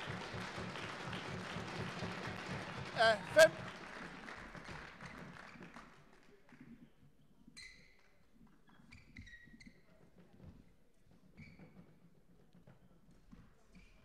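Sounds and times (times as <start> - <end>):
sports hall noise: 0.0 - 5.9
shoes squeaking on sports floor: 11.4 - 11.9.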